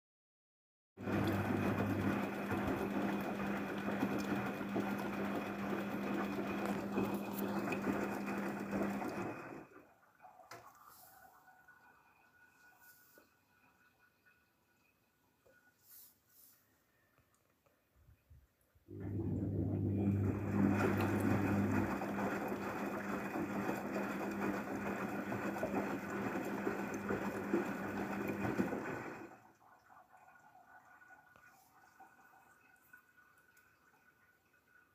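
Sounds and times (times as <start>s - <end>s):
washing machine motor hum: 1.0s - 14.9s, 18.8s - 32.4s
water sloshing in drum: 19.0s - 33.3s.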